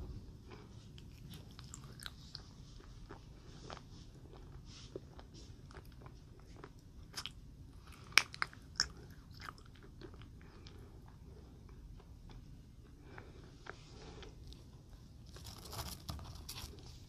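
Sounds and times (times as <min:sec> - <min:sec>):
chewing jelly candy: 0:00.5 - 0:16.8
wet mouth clicks: 0:08.0 - 0:09.7.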